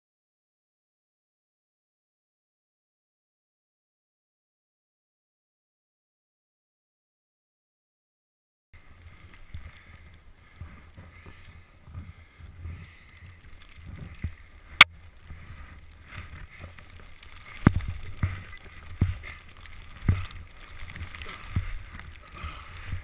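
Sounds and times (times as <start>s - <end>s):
skis swishing through powder snow: 8.8s - 23.0s
wind rumble on camera: 8.8s - 23.0s.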